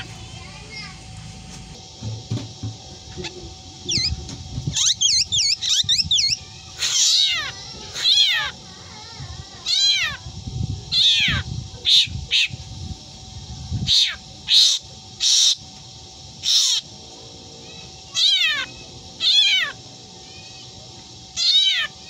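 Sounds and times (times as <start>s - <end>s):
bird mimicking a cat's meow: 4.7s - 8.6s, 9.6s - 10.2s, 10.9s - 12.5s, 13.9s - 15.6s, 18.1s - 19.8s, 21.3s - 22.0s.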